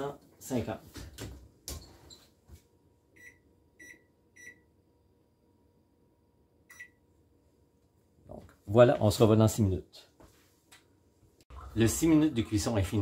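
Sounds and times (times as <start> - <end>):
oven control panel beeps: 3.2 - 4.7, 6.7 - 7.0.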